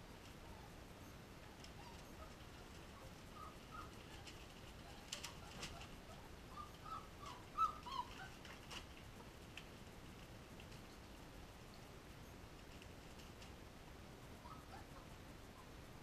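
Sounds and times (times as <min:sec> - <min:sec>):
puppies whimpering and squeaking: 0:01.4 - 0:08.5, 0:14.4 - 0:15.7.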